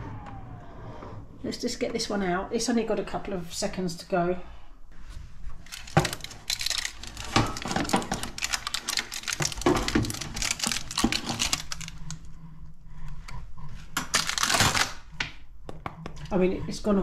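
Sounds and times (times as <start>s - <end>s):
baking parchment crinkling: 5.5s - 12.3s, 14.0s - 15.0s.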